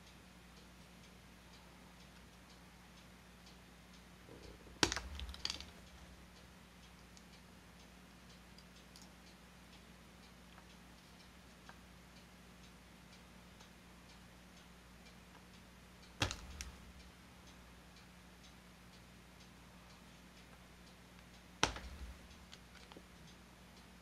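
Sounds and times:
faint regular ticking: 0:00.0 - 0:24.0
low steady hum: 0:00.0 - 0:24.0
plastic parts clicking: 0:04.8 - 0:06.0.

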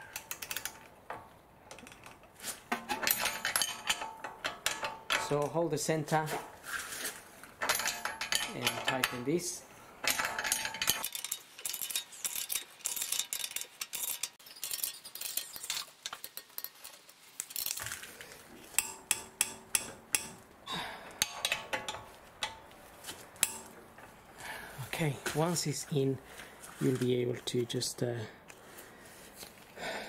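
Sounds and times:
metal tools clinking: 0:01.7 - 0:06.5, 0:07.6 - 0:24.3
hand ratchet clicking: 0:10.0 - 0:16.8, 0:21.1 - 0:22.6.

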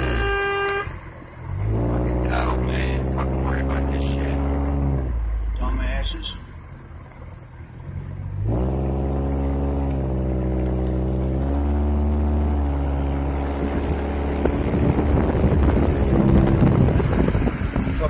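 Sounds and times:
road and wind noise: 0:00.0 - 0:18.0
vehicle engine droning: 0:00.0 - 0:18.0.

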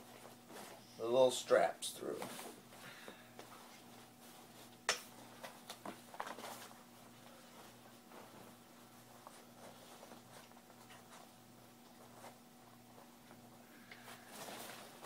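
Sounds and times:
faint steady hum: 0:00.0 - 0:15.0
fabric rustling: 0:03.4 - 0:15.0.

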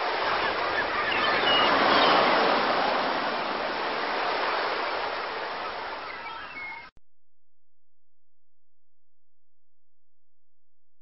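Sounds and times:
ocean waves washing: 0:00.0 - 0:06.9.

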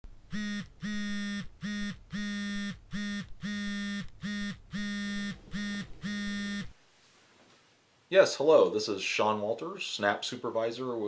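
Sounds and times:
phone buzzing: 0:00.3 - 0:06.8.

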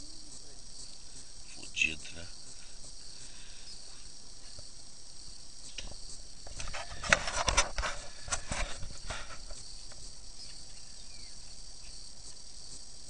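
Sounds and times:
steady high-pitched buzz: 0:00.0 - 0:13.0
knocks and scraping: 0:05.8 - 0:10.1.

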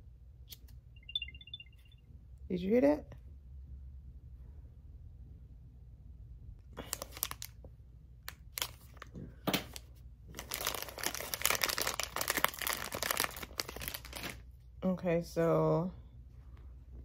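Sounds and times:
plastic pouch crinkling: 0:06.8 - 0:14.5.

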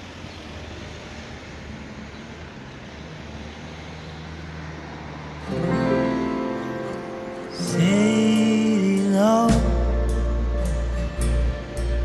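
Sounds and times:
outdoor rumble and hiss: 0:00.0 - 0:12.0
music: 0:05.5 - 0:12.0.

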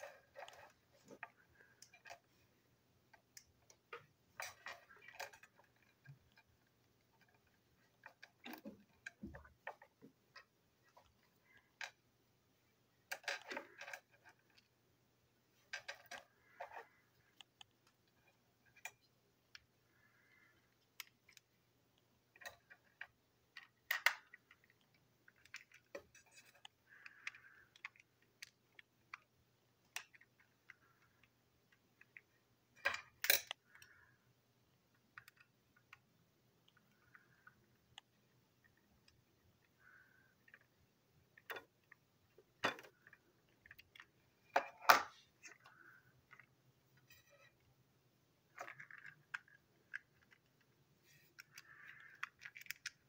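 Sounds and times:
plastic toy parts clicking: 0:03.0 - 0:12.0, 0:13.0 - 0:14.8, 0:15.6 - 0:47.6, 0:48.5 - 0:53.0
plastic clacks: 0:48.5 - 0:53.0.

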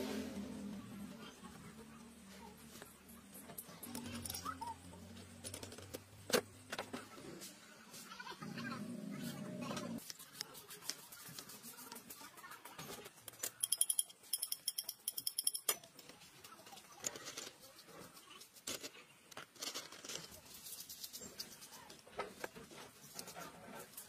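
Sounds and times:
metal parts clicking: 0:13.3 - 0:15.9.

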